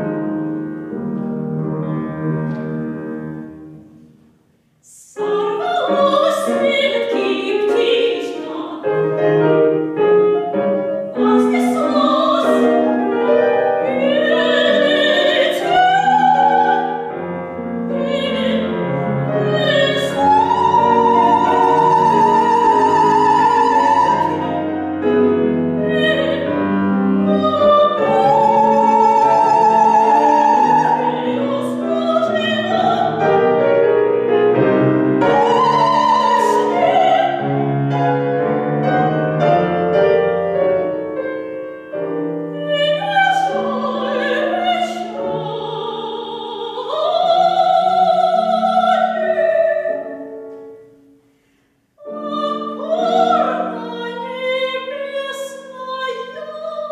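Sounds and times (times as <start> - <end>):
piano and string quartet: 0.0 - 4.0, 4.9 - 51.0, 52.0 - 56.9
woman singing opera: 4.8 - 9.7, 11.0 - 34.0, 35.2 - 38.1, 42.4 - 50.4, 52.0 - 56.9.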